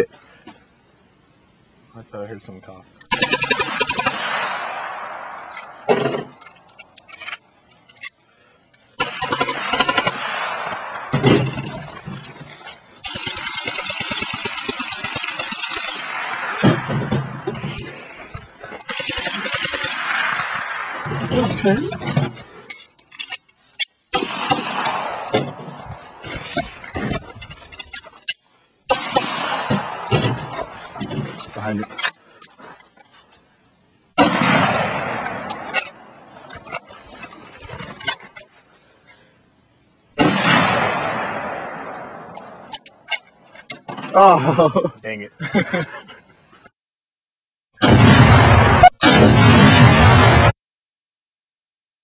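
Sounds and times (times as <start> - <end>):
pistol shots echoing: 3.1 - 5.8, 9.0 - 11.4, 24.2 - 26.2, 28.9 - 30.5, 34.2 - 35.8, 40.2 - 42.6
pistol shots with echo: 3.1 - 5.8.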